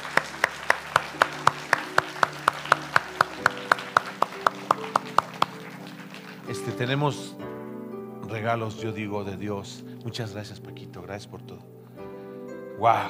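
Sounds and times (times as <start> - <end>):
hands clapping rhythmically: 0.0 - 7.0.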